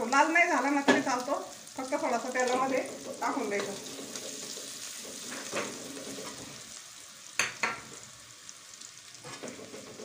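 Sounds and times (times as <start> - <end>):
garlic sizzling in hot oil: 0.0 - 10.0
metal spatula scraping pan: 2.5 - 6.6.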